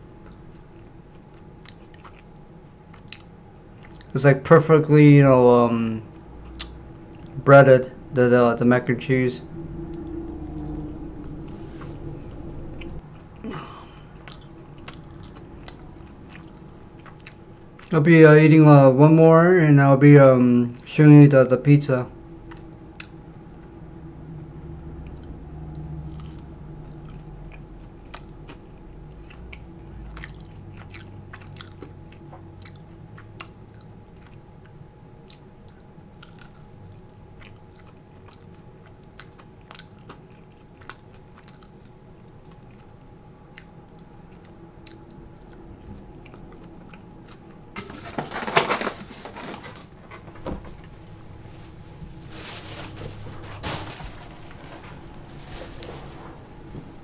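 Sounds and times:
crunchy food chewing: 0.1s - 4.1s, 9.5s - 18.0s, 25.0s - 47.6s
person getting up from chair: 47.8s - 57.0s.

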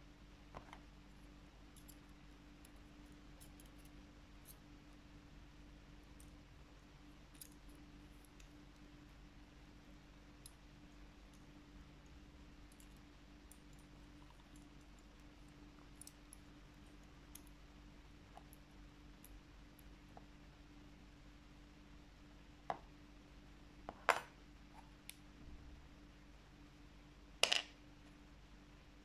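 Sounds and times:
low steady hum: 0.0s - 29.0s.

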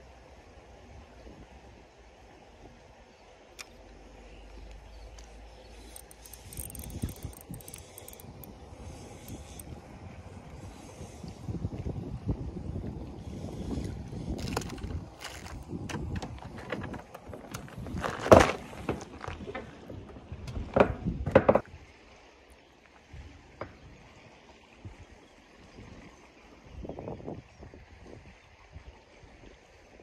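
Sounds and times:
wind buffeting microphone: 5.8s - 21.8s
fishing reel handling knocks: 5.9s - 9.7s.

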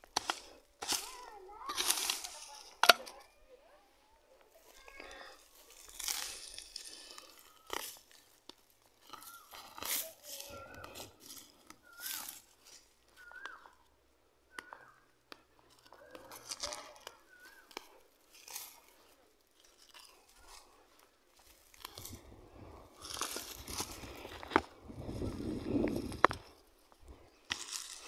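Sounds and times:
soil scraped by hand: 0.0s - 3.2s, 4.8s - 13.6s, 21.5s - 28.0s
dry grass being pulled up: 0.0s - 3.4s, 4.5s - 13.8s, 15.7s - 28.0s.

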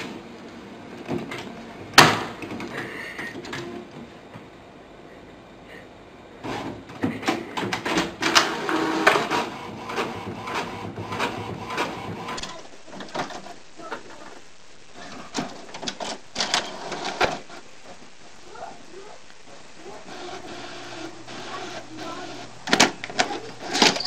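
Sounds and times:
printer clicking and whirring: 6.4s - 13.6s, 15.0s - 18.0s, 19.8s - 24.0s
quieter printer clicks: 6.4s - 13.6s, 15.0s - 17.6s, 20.1s - 24.0s.

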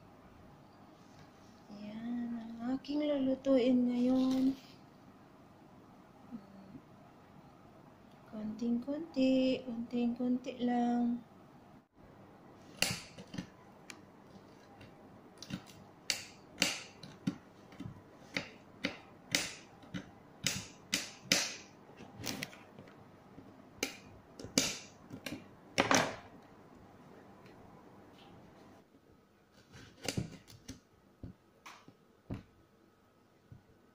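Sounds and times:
knife chopping on glass board: 12.8s - 13.5s, 15.4s - 21.7s.

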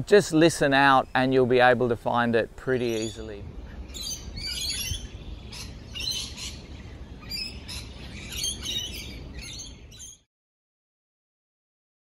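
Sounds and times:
low background rumble: 0.0s - 10.2s
lorikeets chattering and screeching: 2.7s - 10.2s.

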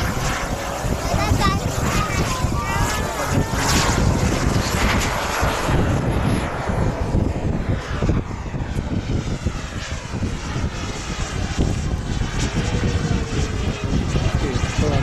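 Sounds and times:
model jet flying past: 0.0s - 15.0s.

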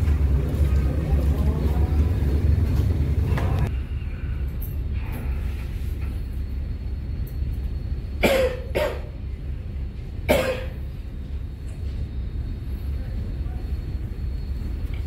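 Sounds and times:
low drone of ship: 0.0s - 15.0s
man coughing: 8.2s - 9.2s, 10.3s - 10.9s.

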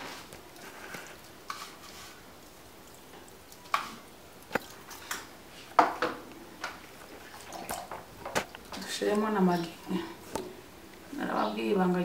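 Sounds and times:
kitchen bowls tapping and knocking: 4.6s - 6.8s.

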